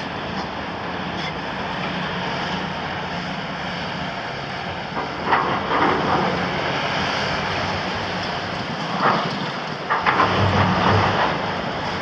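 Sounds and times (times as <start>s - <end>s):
excavator diesel engine running: 0.0s - 12.0s
loud clatter: 4.9s - 6.8s, 8.6s - 12.0s.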